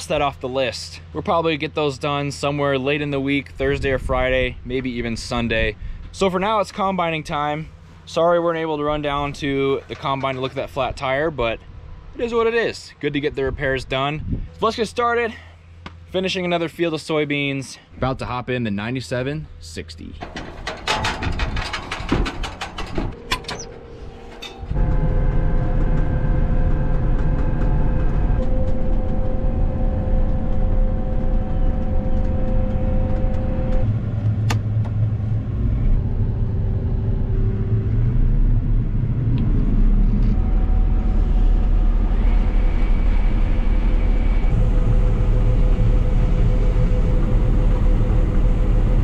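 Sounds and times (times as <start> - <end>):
combine harvester rumbling: 0.0 - 49.0
machinery whines: 20.2 - 49.0.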